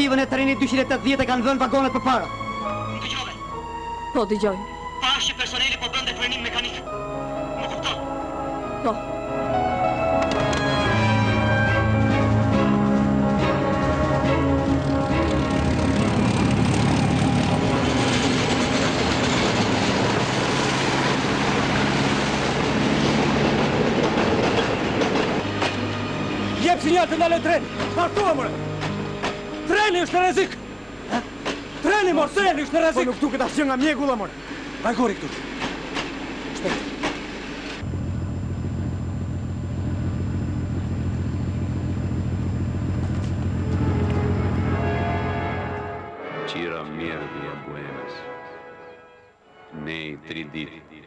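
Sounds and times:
diesel locomotive engine hum: 5.0 - 46.2
train wheels rumbling on rails: 12.1 - 30.3, 31.0 - 45.8.

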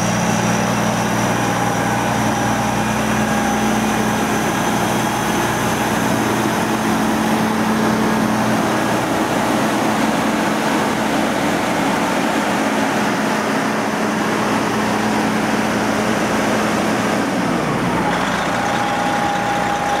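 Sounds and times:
diesel engine idling: 0.0 - 20.0.

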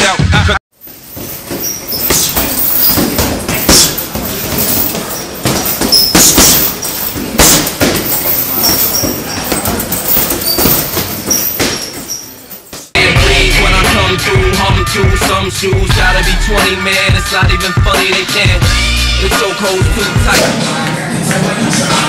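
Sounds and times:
short high squeaks: 0.9 - 3.1, 4.9 - 7.1, 8.2 - 12.6
boxing gloves thudding on heavy bag: 1.1 - 12.1.

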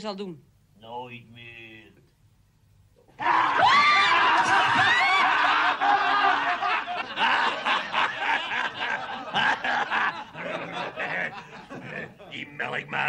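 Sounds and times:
man laughing heartily: 4.4 - 13.0.

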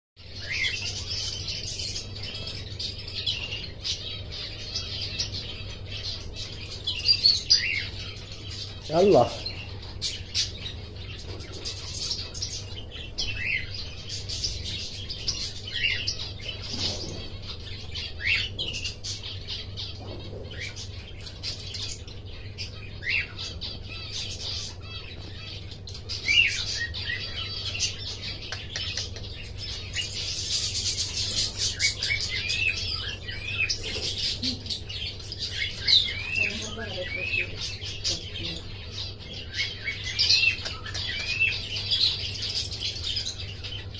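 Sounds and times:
canary chirping: 0.2 - 43.9.

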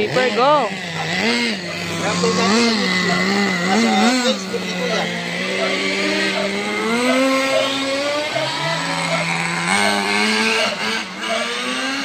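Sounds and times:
small gasoline engine running: 0.0 - 12.0.

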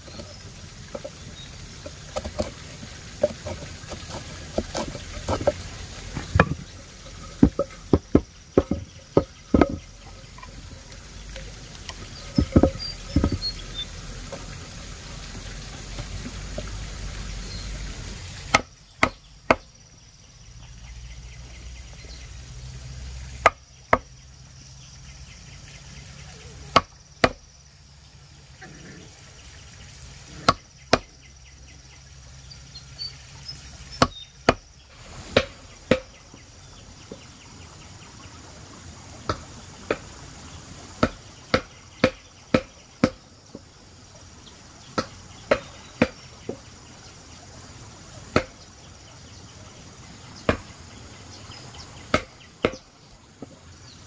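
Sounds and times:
sharp chopping strikes: 48.4 - 48.6, 52.1 - 52.8.

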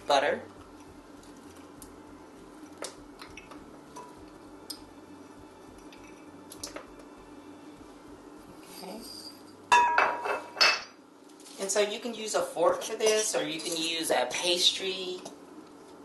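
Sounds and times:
utensils and dishes clattering: 8.7 - 10.9.

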